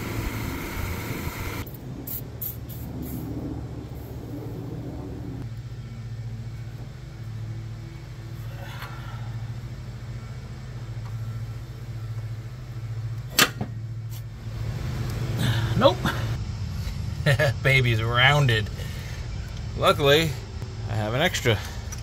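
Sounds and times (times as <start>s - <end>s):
gas torch burning: 0.0s - 4.3s.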